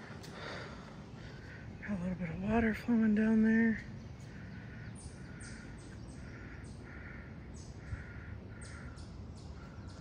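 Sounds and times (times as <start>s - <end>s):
low background rush: 0.0s - 10.0s
crow cawing: 4.2s - 10.0s.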